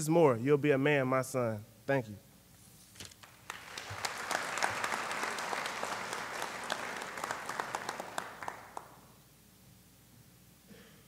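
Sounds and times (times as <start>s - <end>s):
audience applauding: 3.2s - 9.1s.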